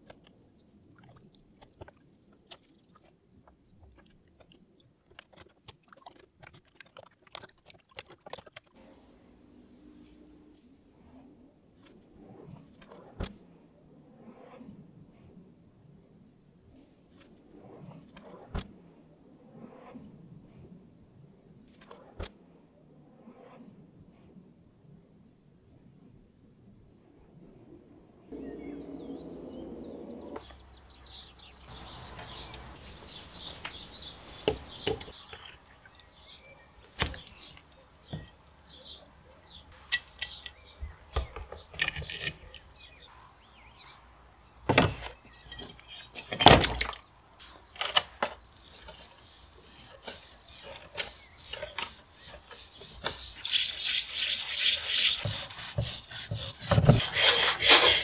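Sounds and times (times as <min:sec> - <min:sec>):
electrolysis bath fizzing: 0:31.8 - 0:37.6
metal scraper scraping rust: 0:36.2 - 0:43.1, 0:47.8 - 0:58.0
abrasive pad scrubbing metal: 0:48.7 - 0:58.0.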